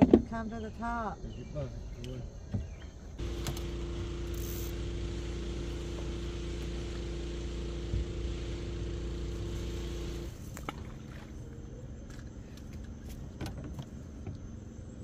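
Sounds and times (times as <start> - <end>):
small motor humming: 3.2 - 11.6.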